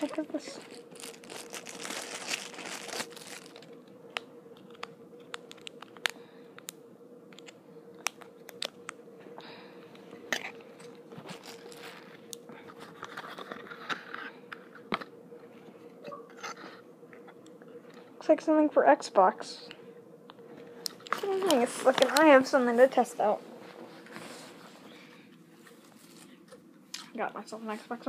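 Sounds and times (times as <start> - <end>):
packaging crinkling and rustling: 0.0 - 6.8, 10.0 - 15.1, 20.9 - 25.0
faint steady hum: 0.0 - 28.0.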